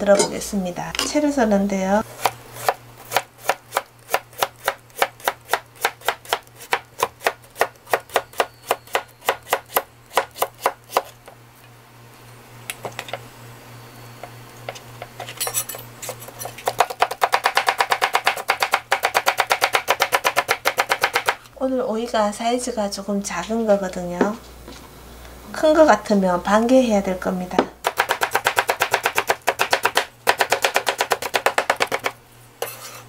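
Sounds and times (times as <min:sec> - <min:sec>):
knife chopping on plastic board: 0:16.6 - 0:21.4, 0:27.9 - 0:32.2.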